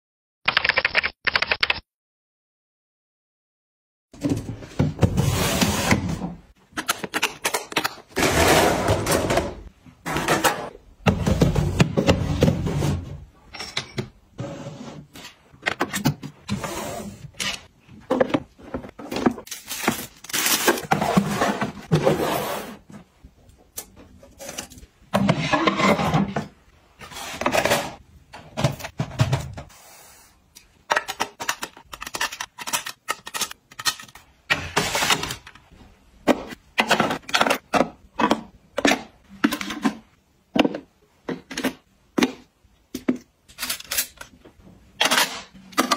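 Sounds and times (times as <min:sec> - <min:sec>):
objects knocked onto shelves: 0:27.4 - 0:29.7.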